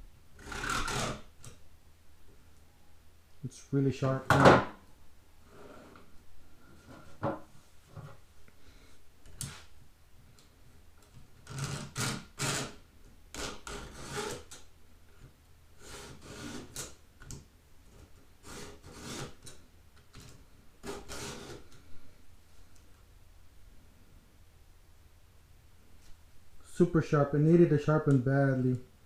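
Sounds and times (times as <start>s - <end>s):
files rasping on saw chain: 0.4s - 1.2s, 13.4s - 14.5s, 15.8s - 16.9s, 18.4s - 19.4s, 20.8s - 21.6s.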